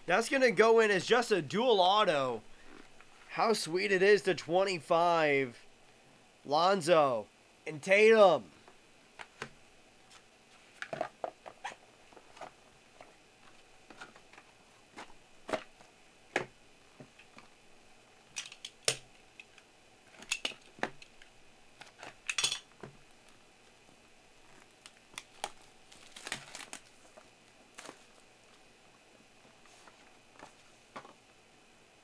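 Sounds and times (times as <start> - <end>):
plastic wrap crinkling and tearing: 24.4 - 28.2.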